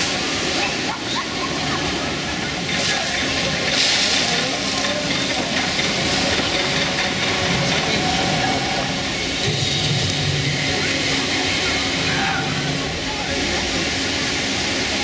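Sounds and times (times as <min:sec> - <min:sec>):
crowd chatter: 0:00.0 - 0:15.0
water rushing along flume: 0:00.0 - 0:15.0.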